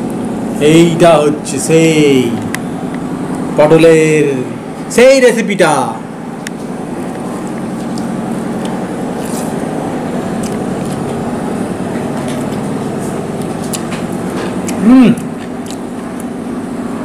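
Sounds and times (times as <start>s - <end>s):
appliance humming: 0.0s - 17.0s
person chewing food: 6.4s - 16.4s.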